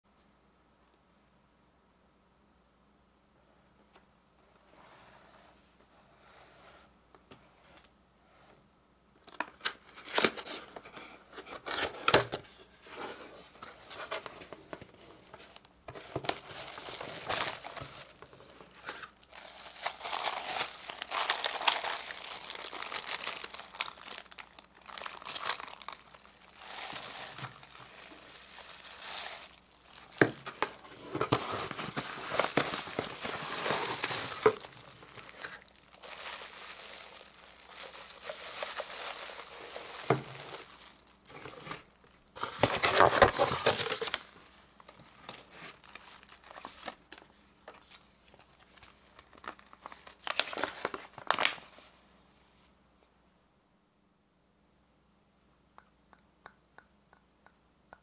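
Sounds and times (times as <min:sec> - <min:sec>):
plastic bags crinkling: 0:15.2 - 0:51.7
cardboard box opening: 0:30.2 - 0:35.6.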